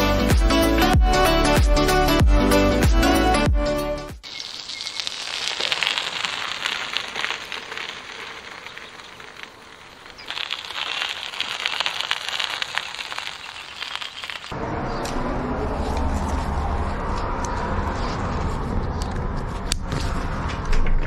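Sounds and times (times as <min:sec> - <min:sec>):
bicycle tyres on gravel: 0:04.2 - 0:14.6.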